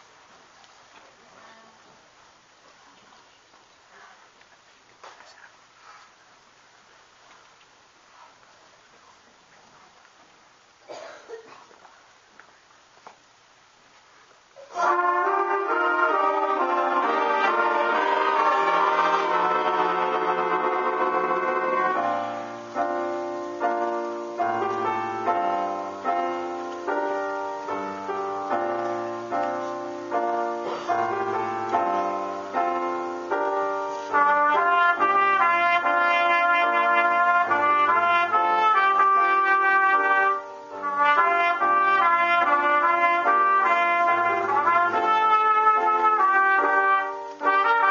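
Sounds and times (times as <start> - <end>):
solo piano: 14.7 - 47.9
solo trumpet melody: 14.7 - 47.9
jazz band chord: 14.8 - 47.9.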